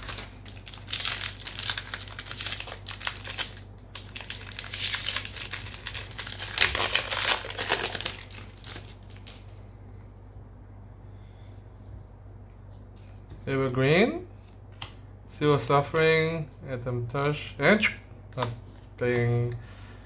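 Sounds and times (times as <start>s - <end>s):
foil wrapper crinkling: 0.0s - 9.6s.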